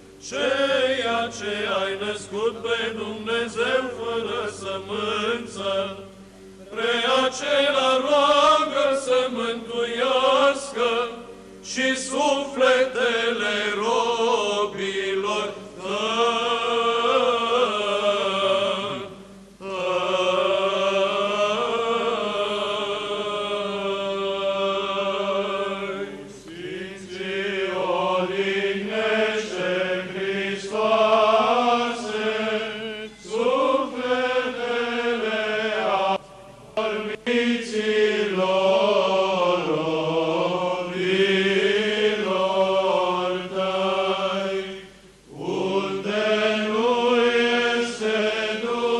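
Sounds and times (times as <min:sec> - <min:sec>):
held drone note: 0:00.0 - 0:07.6
male choir chanting: 0:00.2 - 0:06.1, 0:06.7 - 0:36.2, 0:36.8 - 0:48.9.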